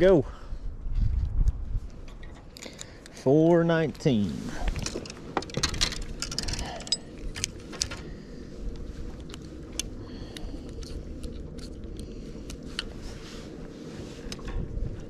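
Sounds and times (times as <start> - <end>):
steady low rumble: 0.0 - 15.0
fishing tackle clicking and rattling: 4.8 - 8.0.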